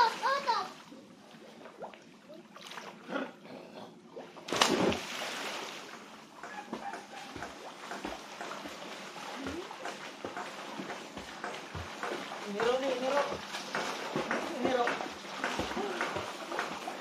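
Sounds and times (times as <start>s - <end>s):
water churning and sloshing: 0.0s - 17.0s
big sudden splash: 4.5s - 5.7s
swimmers splashing in water: 4.5s - 17.0s.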